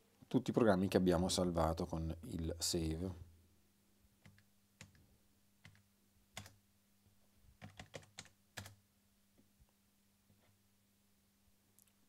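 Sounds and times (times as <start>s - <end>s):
keyboard keys clicking: 7.6s - 8.8s.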